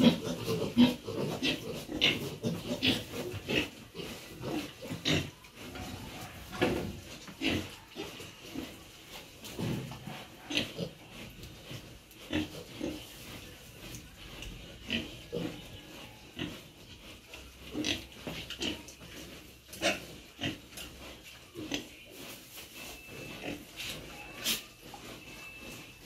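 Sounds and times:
pigs grunting: 0:00.0 - 0:08.8, 0:09.6 - 0:13.5, 0:14.2 - 0:22.0.

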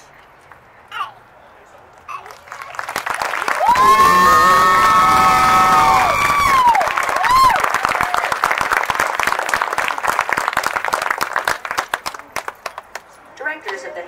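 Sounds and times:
crowd clapping and cheering: 0:02.1 - 0:13.1
people whooping: 0:03.3 - 0:08.6.

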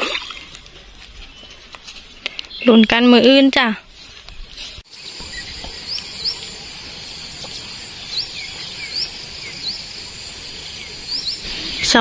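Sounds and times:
bird chirping: 0:04.2 - 0:12.0
insect chorus: 0:04.9 - 0:12.0.

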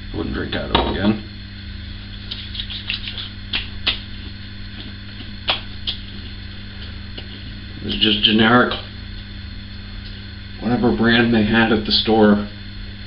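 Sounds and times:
low electrical hum: 0:00.0 - 0:13.0
hands patting face: 0:02.1 - 0:07.5
sharp slaps on skin: 0:02.3 - 0:04.1, 0:05.4 - 0:06.0.

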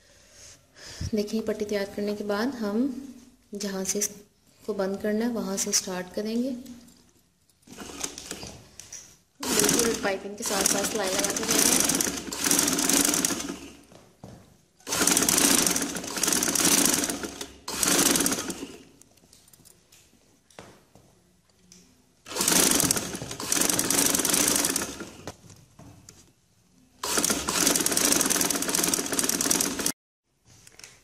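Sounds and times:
sewing machine stitching: 0:07.6 - 0:08.6, 0:09.4 - 0:13.9, 0:14.8 - 0:18.9, 0:22.3 - 0:25.4, 0:27.0 - 0:30.0.

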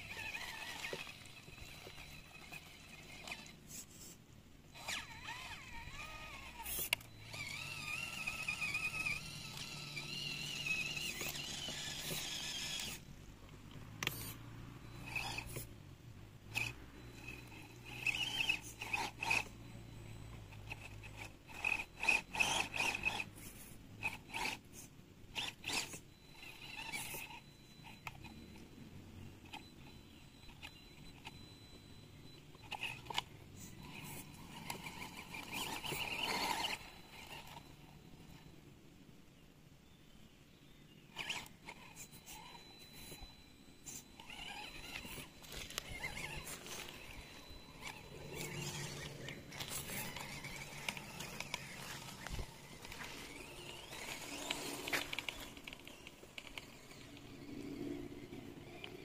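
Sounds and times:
small electric motor whining: 0:00.0 - 0:38.8, 0:41.0 - 0:59.0
parts being handled scraping: 0:41.2 - 0:57.7.

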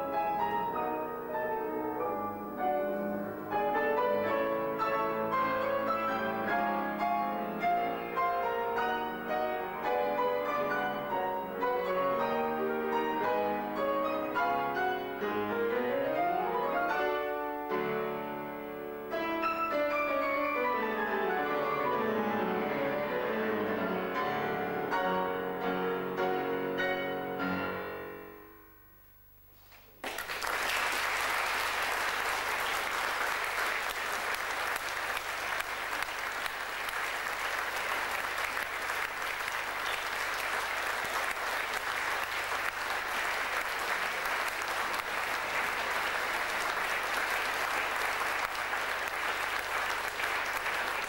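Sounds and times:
piano duet chords: 0:00.0 - 0:28.8
audience applause: 0:30.0 - 0:51.0.

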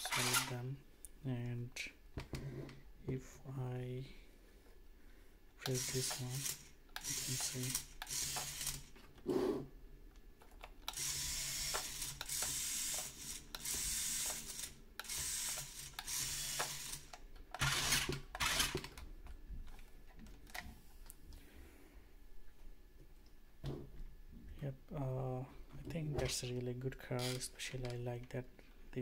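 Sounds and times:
toy car motors whirring: 0:00.0 - 0:00.5, 0:05.6 - 0:09.0, 0:10.8 - 0:19.0, 0:27.2 - 0:27.5.

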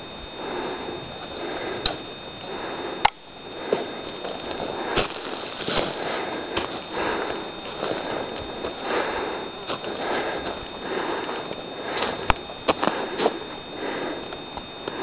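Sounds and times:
footsteps on leaf litter and twigs: 0:03.7 - 0:13.5.

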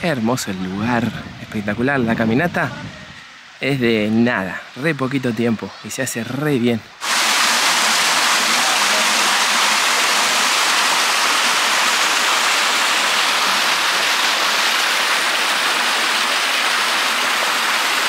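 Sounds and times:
waterfall rushing over rocks: 0:07.0 - 0:18.0.

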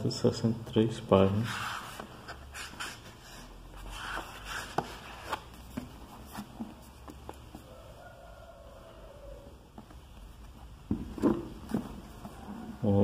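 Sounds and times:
books knocking and tapping: 0:04.7 - 0:07.7, 0:09.7 - 0:12.8.

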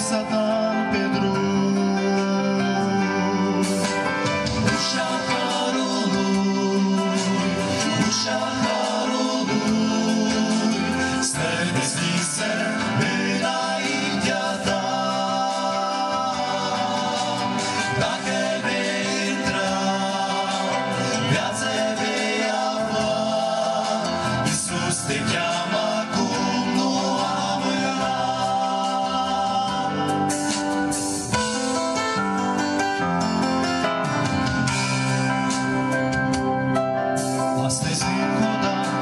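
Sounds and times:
group singing a hymn: 0:04.6 - 0:30.6.

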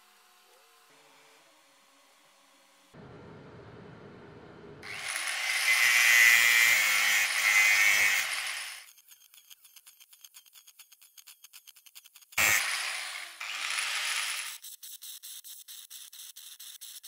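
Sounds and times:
power tool on metal: 0:04.8 - 0:09.4, 0:12.4 - 0:14.6.

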